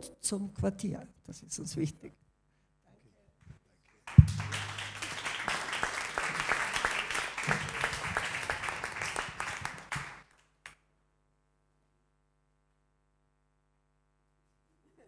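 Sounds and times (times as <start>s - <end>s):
audience applauding: 4.1s - 10.3s
single hand clap: 4.1s - 10.8s.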